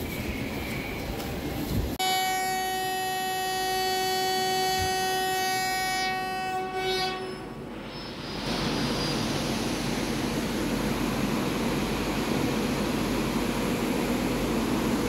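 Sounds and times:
railway background noise: 0:00.0 - 0:15.0
train horn long blast: 0:02.0 - 0:08.1.

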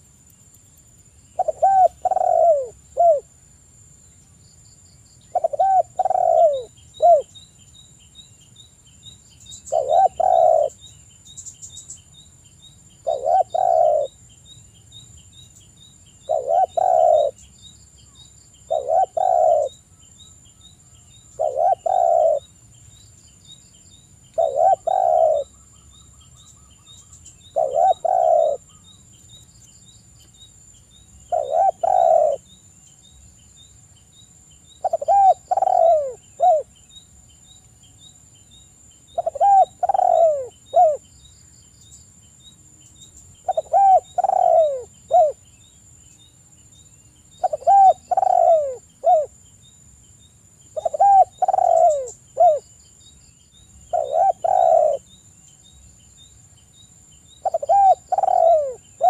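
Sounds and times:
dove cooing: 0:01.4 - 0:03.3, 0:05.3 - 0:07.3, 0:09.7 - 0:10.8, 0:13.0 - 0:14.2, 0:16.3 - 0:17.4, 0:18.7 - 0:19.8, 0:21.4 - 0:22.5, 0:24.4 - 0:25.5, 0:27.5 - 0:28.8, 0:31.3 - 0:32.4, 0:34.8 - 0:36.7, 0:39.2 - 0:41.0, 0:43.4 - 0:45.4, 0:47.4 - 0:49.3, 0:50.8 - 0:52.6, 0:53.9 - 0:55.1, 0:57.4 - 0:59.0.

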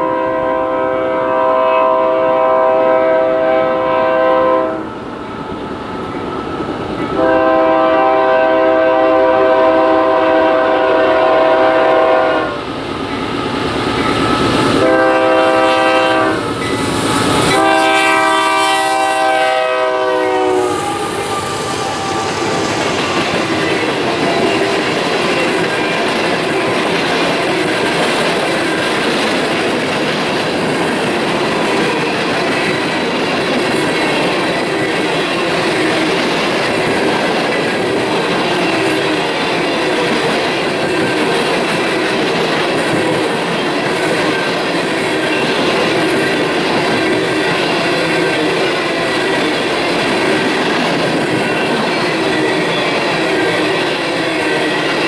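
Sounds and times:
locomotive air horn: 0:00.0 - 0:04.9, 0:07.2 - 0:12.6, 0:14.8 - 0:16.5, 0:17.4 - 0:24.5
train wheels clacking over rail joints: 0:22.0 - 0:55.0.

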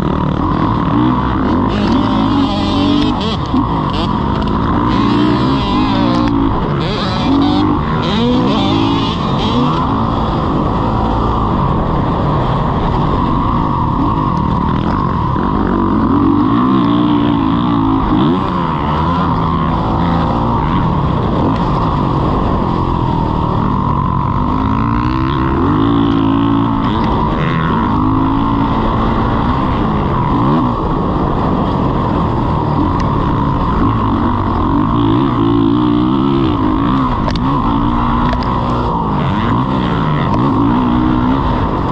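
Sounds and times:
dirt bike engine revving: 0:00.0 - 0:41.9.

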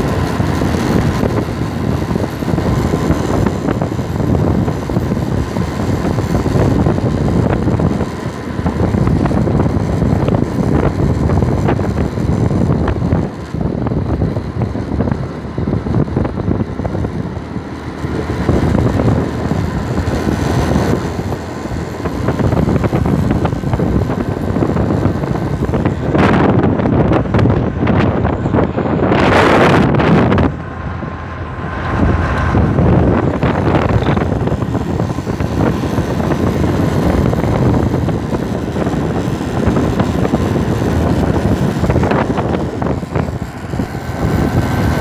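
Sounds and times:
motorcycle engine running: 0:00.0 - 0:45.0
wind buffeting microphone: 0:00.0 - 0:45.0.

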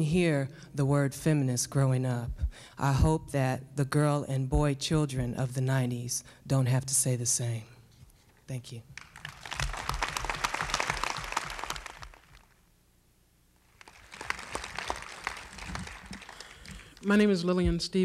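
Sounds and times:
audience applauding: 0:09.0 - 0:12.5, 0:13.7 - 0:17.1.

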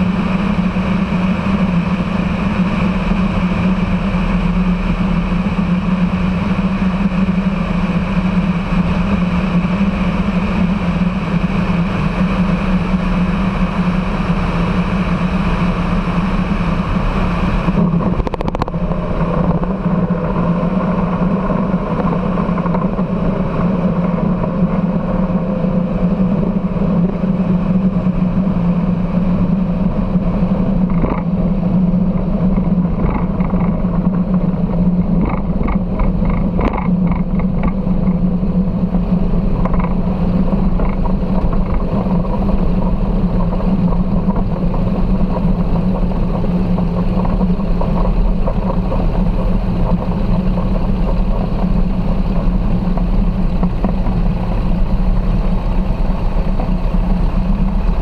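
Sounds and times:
light aircraft engine and propeller: 0:00.0 - 0:58.0
quick rattling ticks: 0:35.2 - 0:38.2.

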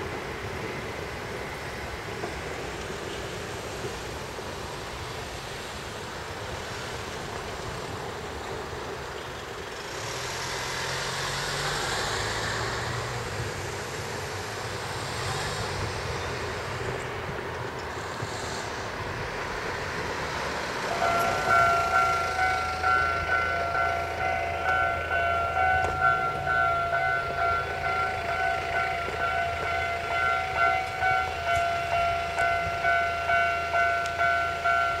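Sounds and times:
crossing warning bell dinging: 0:20.6 - 0:35.0.

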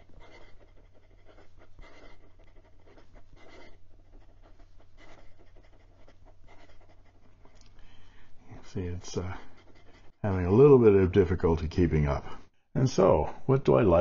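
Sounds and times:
pen nib scratching paper: 0:00.0 - 0:10.7.

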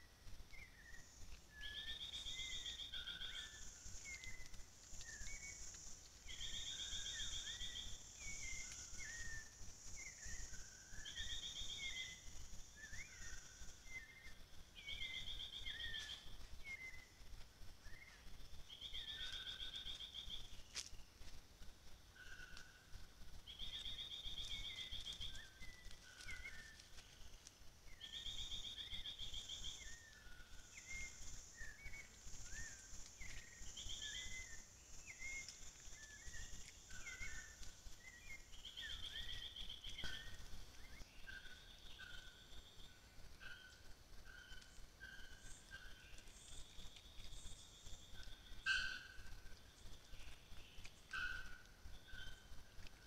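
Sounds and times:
steady high insect hiss: 0:00.0 - 0:53.0
pulsed insect trill: 0:00.7 - 0:17.2, 0:23.5 - 0:40.7.

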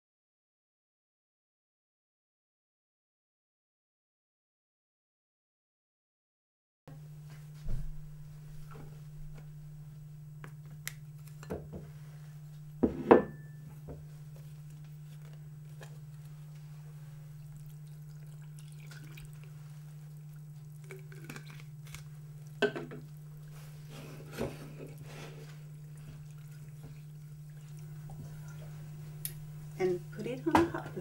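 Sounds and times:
steady low hum: 0:06.9 - 0:31.0.

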